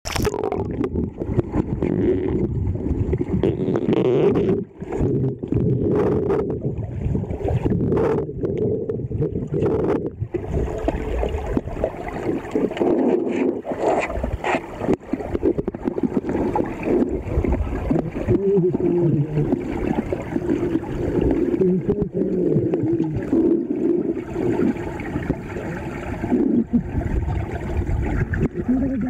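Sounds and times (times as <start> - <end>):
muffled churning water underwater: 0.0 - 29.0.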